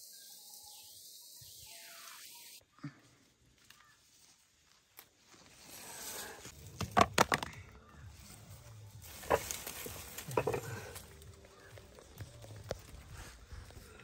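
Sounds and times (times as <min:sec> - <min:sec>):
leaves and stems rustling: 0:03.0 - 0:06.8, 0:07.9 - 0:14.0
stems snapping: 0:04.7 - 0:05.3, 0:09.0 - 0:13.1.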